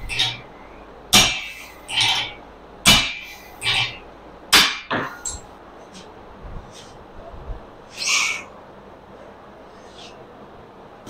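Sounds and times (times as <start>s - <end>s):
sledgehammer striking metal spike: 1.1s - 5.1s.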